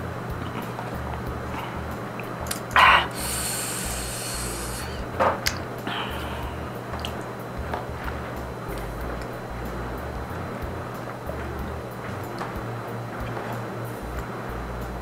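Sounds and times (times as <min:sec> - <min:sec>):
person breathing hard: 0:02.8 - 0:05.2, 0:05.8 - 0:06.8.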